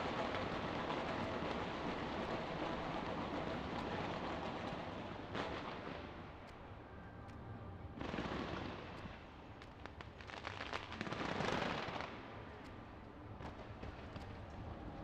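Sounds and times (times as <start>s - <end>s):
fireworks crackling and popping: 0.0s - 6.3s, 8.0s - 12.3s.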